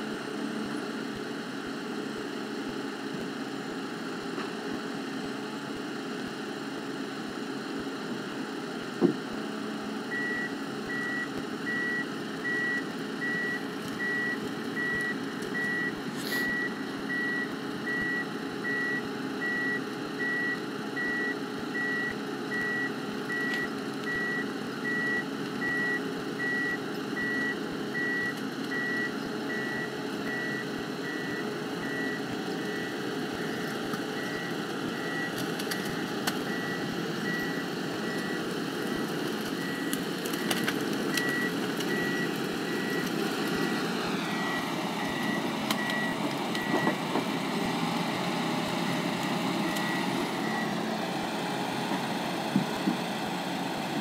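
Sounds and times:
diesel engine running: 0.0s - 54.0s
reversing alarm beeping: 10.1s - 47.0s, 48.8s - 50.8s.

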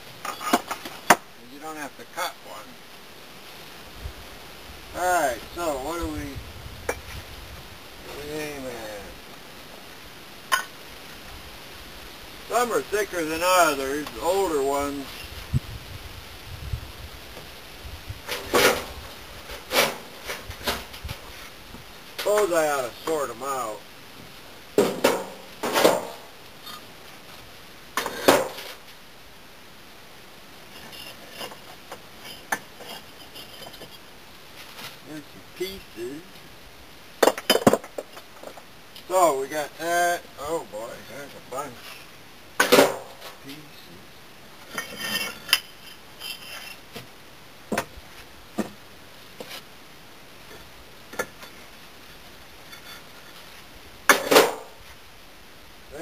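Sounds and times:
bricks clacking and scraping: 0.2s - 1.3s, 28.0s - 28.8s, 30.7s - 34.0s, 37.2s - 38.6s, 44.7s - 47.1s, 54.1s - 54.7s.

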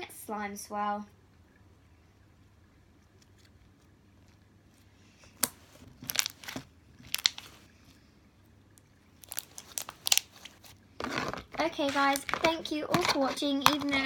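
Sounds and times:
slime clicking and popping: 7.1s - 7.4s, 9.2s - 10.3s.

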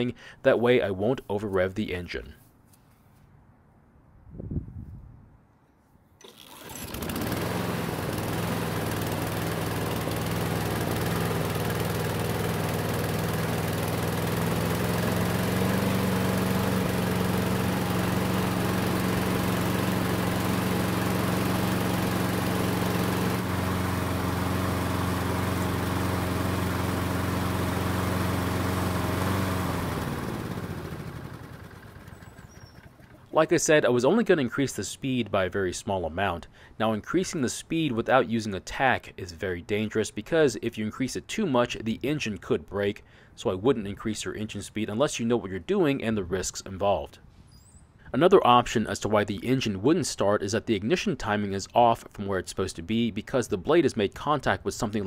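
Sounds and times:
push mower engine running: 6.2s - 33.5s.

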